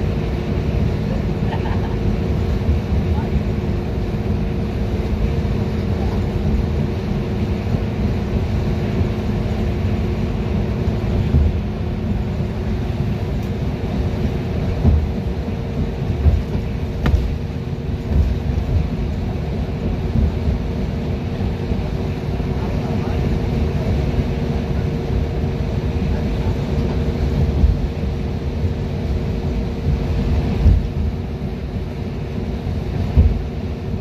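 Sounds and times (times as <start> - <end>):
bus engine drone: 0.0 - 34.0
low road rumble: 0.0 - 34.0
low thumps from bumps: 11.2 - 11.7, 14.8 - 19.0, 29.9 - 31.2, 33.1 - 33.4.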